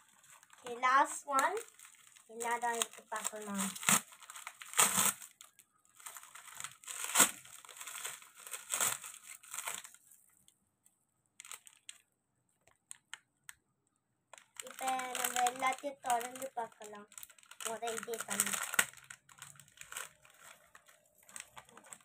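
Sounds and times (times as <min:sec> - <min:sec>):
paper being torn and crumpled: 0:00.0 - 0:05.4, 0:06.0 - 0:10.0
faint paper rustles: 0:00.0 - 0:10.6, 0:14.4 - 0:22.0.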